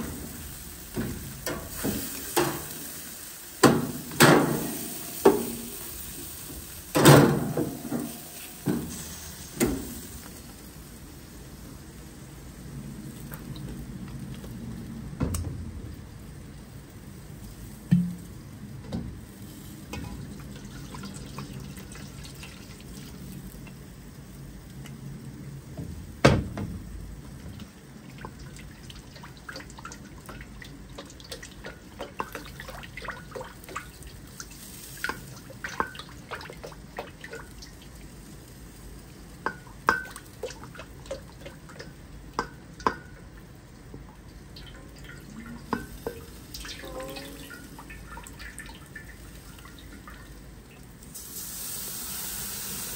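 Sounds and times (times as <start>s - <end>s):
water dripping in a sink: 19.9s - 23.8s, 27.5s - 38.2s, 39.0s - 51.1s.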